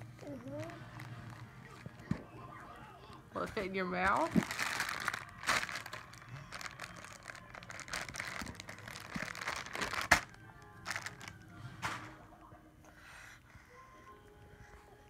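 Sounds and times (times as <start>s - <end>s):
crinkling and rustling: 0.0s - 2.4s, 3.1s - 12.2s
faint background music: 0.0s - 15.0s.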